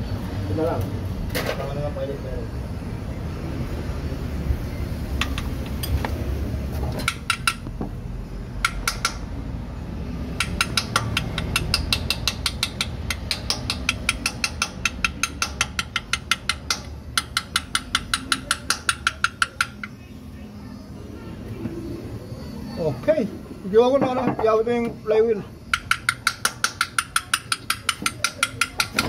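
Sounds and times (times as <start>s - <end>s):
ratchet wrench clicking: 10.4s - 20.0s, 25.7s - 29.0s.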